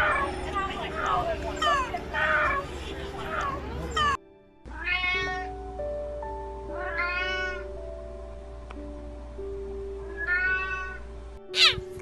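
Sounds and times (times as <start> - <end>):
soft background music: 0.0 - 12.0
kittens meowing: 1.0 - 5.5, 6.8 - 7.7, 10.1 - 12.0.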